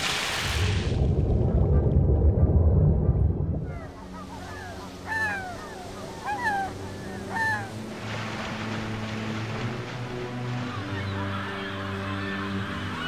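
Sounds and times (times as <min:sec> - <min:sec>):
water churning and splashing: 0:00.0 - 0:13.0
seabird calls: 0:03.6 - 0:08.8, 0:10.2 - 0:13.0.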